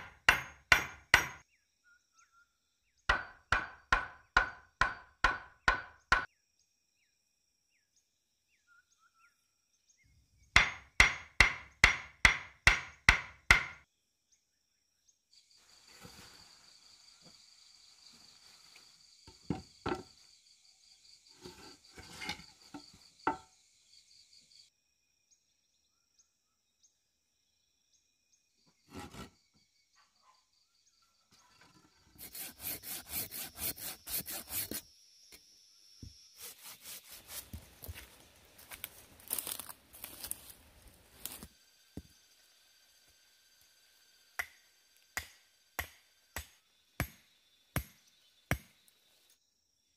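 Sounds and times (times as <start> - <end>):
hammering on wood: 0.0 - 1.4, 3.1 - 6.3, 10.6 - 13.8, 45.2 - 47.2
high insect buzz: 31.4 - 49.9
hand saw cutting branch: 32.1 - 34.8, 36.4 - 37.6.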